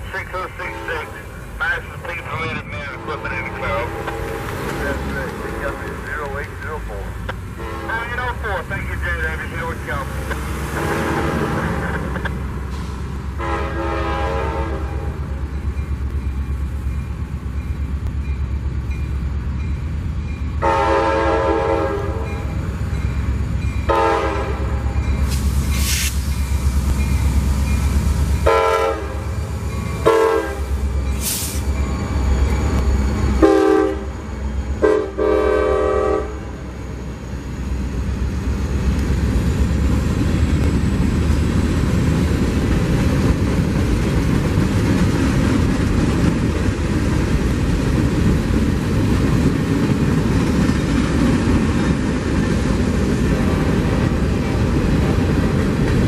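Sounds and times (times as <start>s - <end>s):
low rumble of locomotives: 0.0s - 56.0s
train air horn blasts: 2.8s - 4.7s, 7.6s - 8.1s, 10.6s - 12.1s, 13.4s - 15.3s, 20.6s - 22.5s, 23.9s - 26.2s, 28.4s - 29.4s, 30.0s - 31.6s, 33.4s - 34.1s, 34.8s - 36.5s.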